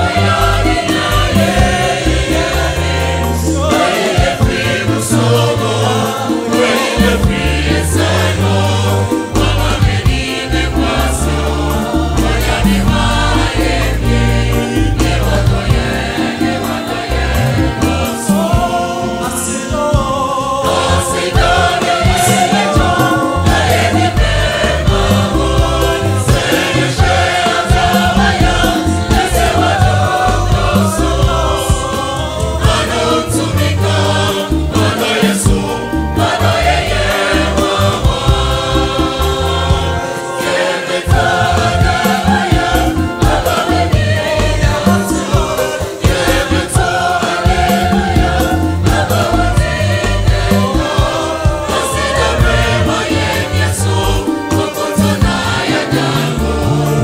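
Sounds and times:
choir singing gospel: 0:00.0 - 0:57.0
electronic keyboard: 0:00.0 - 0:57.0.

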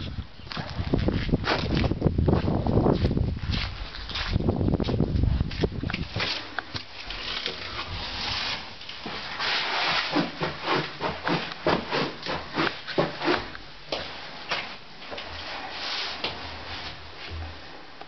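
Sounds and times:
footsteps on hard floor: 0:10.4 - 0:15.4.

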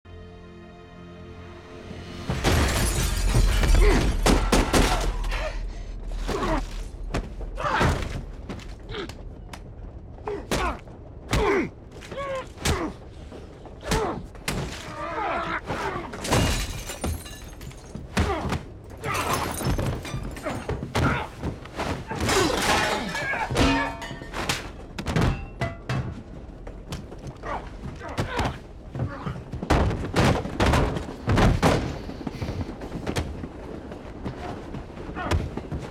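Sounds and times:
glass shattering: 0:02.3 - 0:05.0, 0:16.2 - 0:18.0, 0:19.0 - 0:20.7, 0:22.3 - 0:25.9
deep rumble: 0:02.8 - 0:14.5
heavy thumps of blows: 0:23.6 - 0:32.0.

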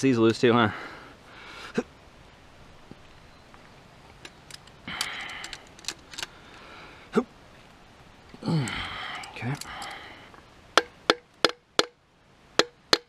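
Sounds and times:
wrench metal clicks and clinks: 0:04.2 - 0:06.3, 0:09.1 - 0:10.0.

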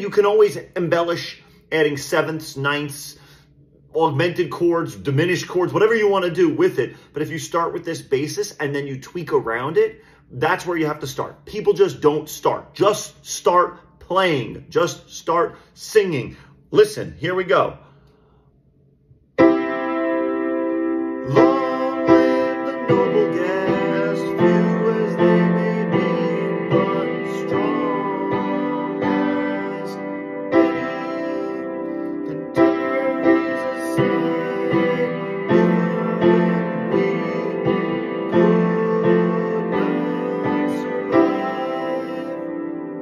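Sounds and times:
piano chords: 0:19.3 - 0:43.0
man singing: 0:21.2 - 0:43.0.

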